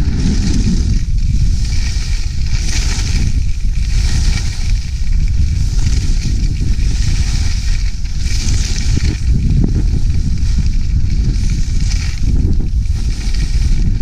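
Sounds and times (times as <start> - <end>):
skis hissing over snow: 0.0 - 14.0
wind buffeting microphone: 0.0 - 14.0.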